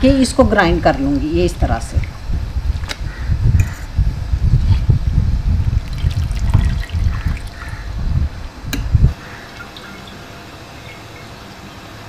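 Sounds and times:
water dripping into steel pot: 0:09.2 - 0:11.1.

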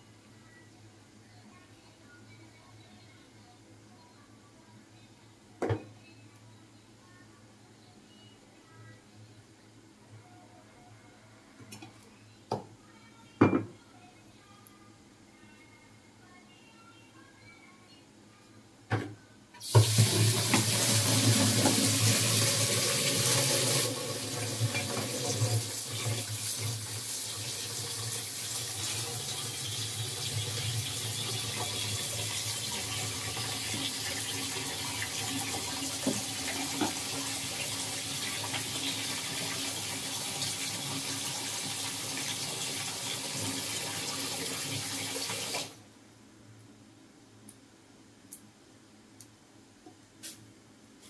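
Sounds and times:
tap water running into sink: 0:19.6 - 0:45.7.

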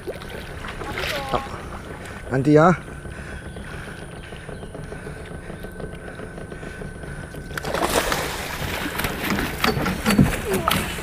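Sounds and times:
boat motor humming: 0:00.0 - 0:11.0
fish splashing at the surface: 0:07.6 - 0:09.6.

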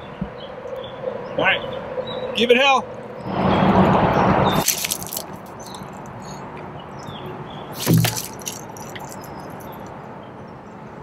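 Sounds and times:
lure slapping inflatable tube: 0:07.8 - 0:09.2.

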